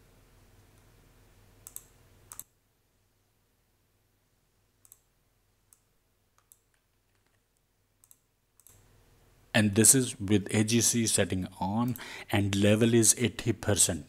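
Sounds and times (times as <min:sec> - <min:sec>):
low hum and soft hiss: 0:00.0 - 0:14.0
computer mouse clicks: 0:01.6 - 0:02.5, 0:04.8 - 0:05.1, 0:05.7 - 0:07.4, 0:08.0 - 0:08.8.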